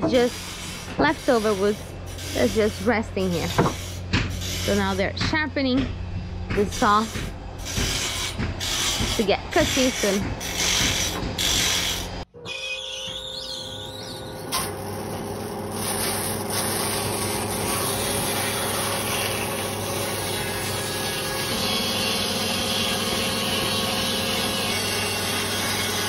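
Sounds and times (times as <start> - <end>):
saw being sharpened: 0.0 - 5.0, 6.8 - 12.2.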